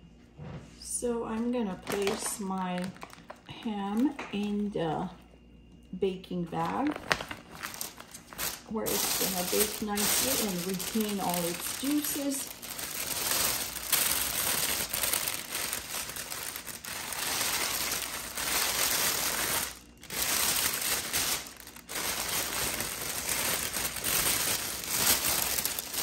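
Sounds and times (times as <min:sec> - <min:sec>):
plastic bag crinkling: 0:01.4 - 0:04.7, 0:06.5 - 0:26.0.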